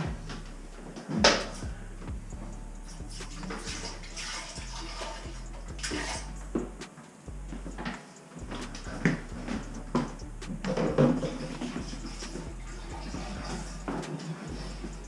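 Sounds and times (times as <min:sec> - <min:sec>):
liquid pouring into toilet bowl: 0:04.1 - 0:05.2.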